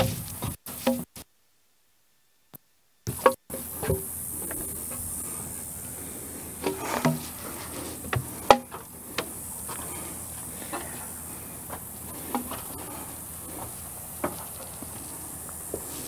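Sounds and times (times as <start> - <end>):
steady high hiss: 0.0 - 16.0
wooden timber knocking: 6.6 - 7.4, 8.1 - 9.3.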